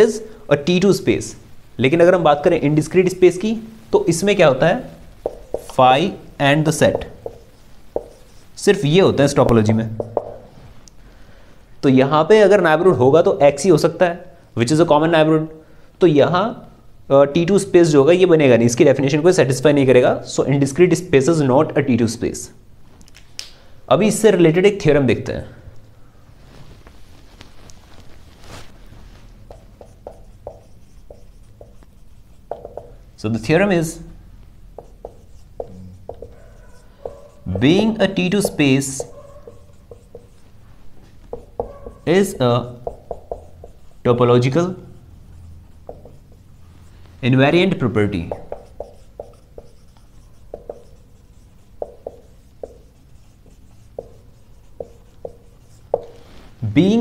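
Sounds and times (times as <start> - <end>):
marker pen writing on whiteboard: 4.1 - 10.6, 29.2 - 56.3
whiteboard being wiped: 5.2 - 5.8, 6.8 - 8.6, 26.4 - 33.0, 34.8 - 44.2, 45.3 - 47.3, 48.2 - 56.7.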